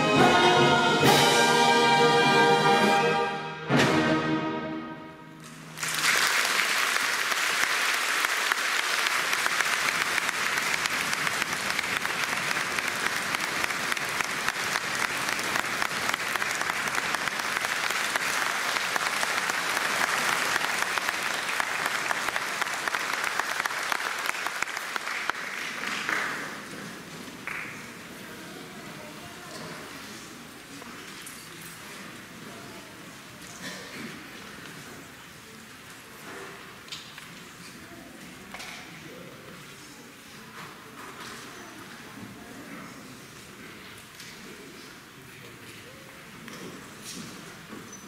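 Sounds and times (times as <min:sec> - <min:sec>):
audience applause: 0:05.7 - 0:28.0.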